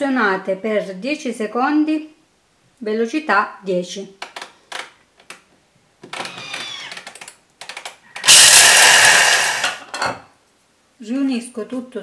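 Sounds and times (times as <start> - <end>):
harsh grinding of nuts: 6.2 - 9.9
food processor blades whirring: 8.2 - 9.8.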